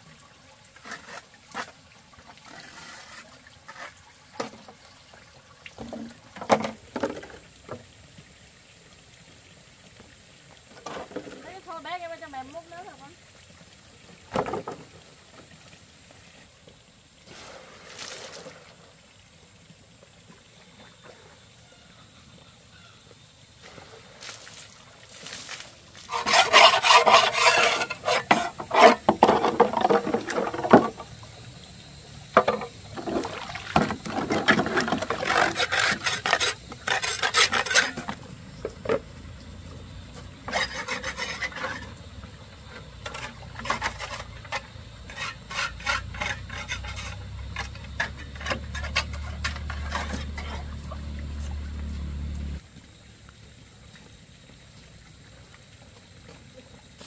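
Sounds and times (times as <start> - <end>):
tool scraping cement: 26.0 - 29.7, 34.2 - 38.2, 40.5 - 41.9, 43.1 - 50.7.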